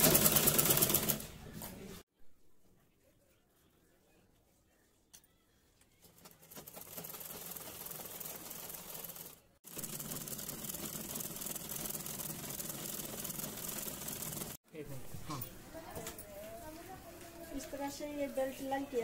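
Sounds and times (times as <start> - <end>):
sewing machine running: 0.0 - 1.3, 6.2 - 14.6.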